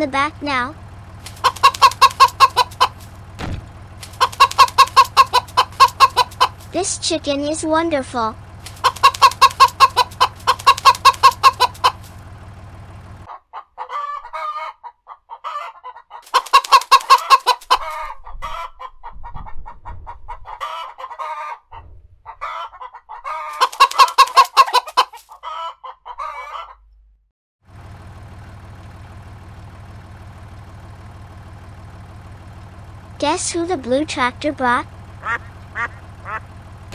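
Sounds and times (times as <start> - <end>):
hens clucking: 0.2 - 26.9, 32.2 - 36.9.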